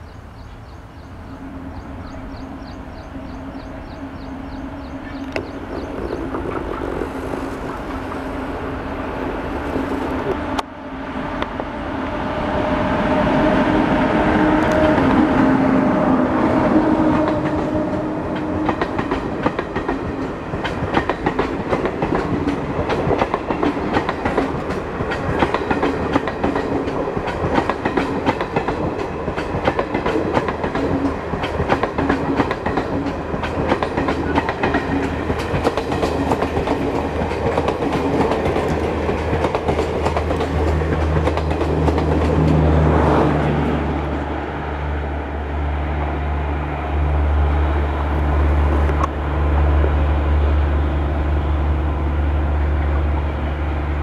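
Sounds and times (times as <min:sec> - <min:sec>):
electric locomotive hum: 0:00.0 - 0:54.0
low rumble of train coaches: 0:00.0 - 0:54.0
train wheels clickety-clack: 0:16.9 - 0:43.6.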